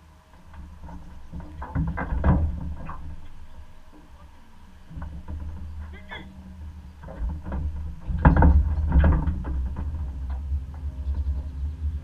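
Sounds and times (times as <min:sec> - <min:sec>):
water splashes and knocks: 0:00.3 - 0:11.3.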